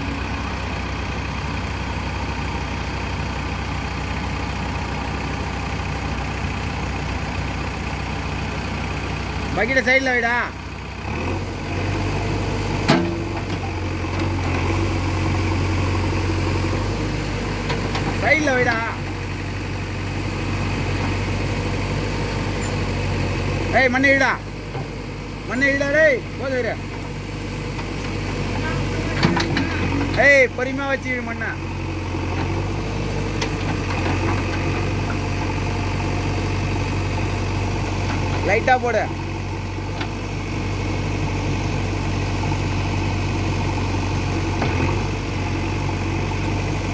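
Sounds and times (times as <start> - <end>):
diesel engine running: 0.0 - 46.9.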